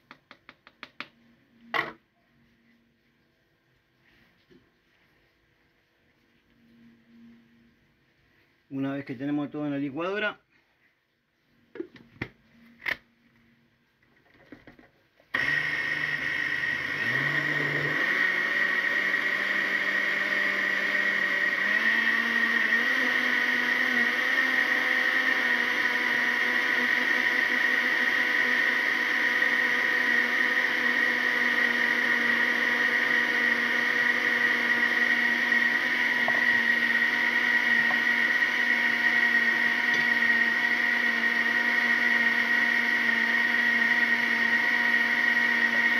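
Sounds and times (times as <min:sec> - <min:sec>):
blender motor whining: 0:15.3 - 0:45.9.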